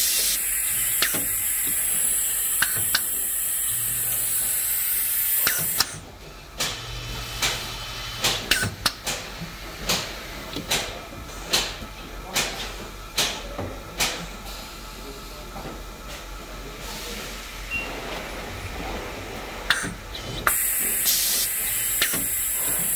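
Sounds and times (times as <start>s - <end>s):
pneumatic head clicks and clacks: 0.0s - 3.4s, 5.3s - 6.0s, 8.2s - 10.9s, 19.7s - 22.9s
compressed air hiss: 0.0s - 5.9s, 20.4s - 22.9s.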